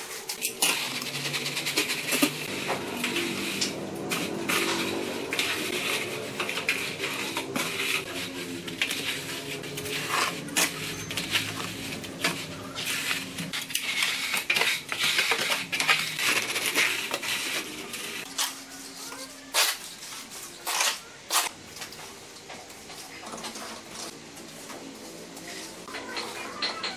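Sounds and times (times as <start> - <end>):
metal straightedge scraping wet concrete: 0.1 - 18.6.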